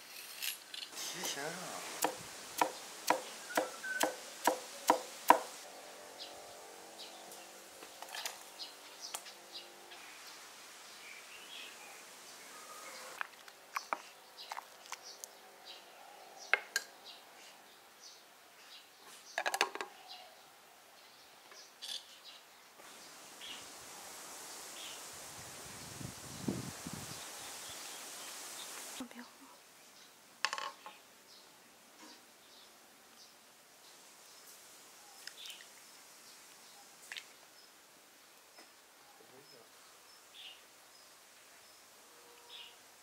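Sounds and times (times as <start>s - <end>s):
cleaver chopping on wooden block: 2.0s - 5.5s.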